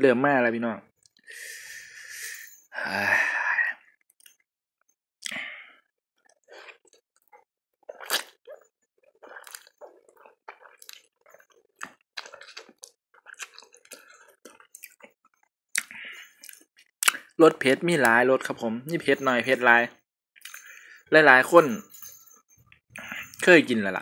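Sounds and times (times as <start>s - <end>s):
person slurping and chewing noodles: 6.4s - 17.4s.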